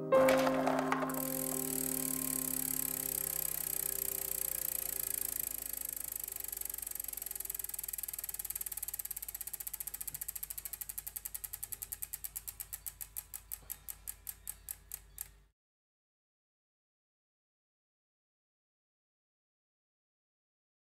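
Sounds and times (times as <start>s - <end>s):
faint held tones: 0.9s - 9.2s
mechanical ticking: 1.0s - 15.4s.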